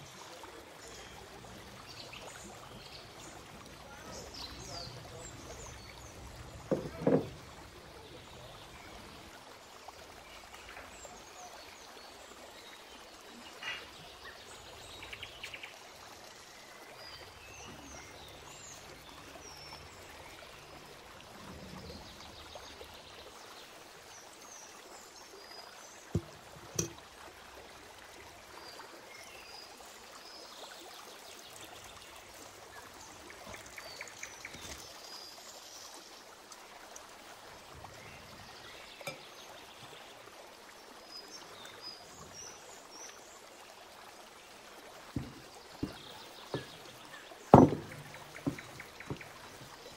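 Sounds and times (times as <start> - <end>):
rushing water: 0.0 - 49.9
sharp knocks: 6.7 - 7.4, 26.2 - 27.0, 45.2 - 46.9, 47.5 - 49.8
small birds chirping: 45.2 - 49.9.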